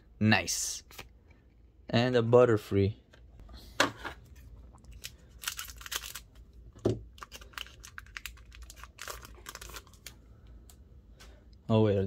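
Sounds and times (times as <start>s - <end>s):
foil wrapper crinkling: 4.9s - 6.4s, 7.1s - 10.2s.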